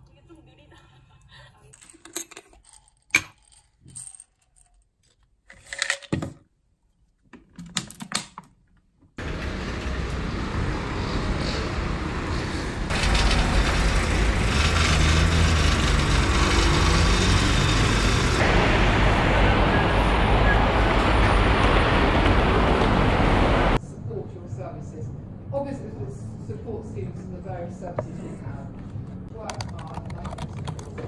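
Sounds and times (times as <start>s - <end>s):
city street traffic hum: 9.2s - 31.0s.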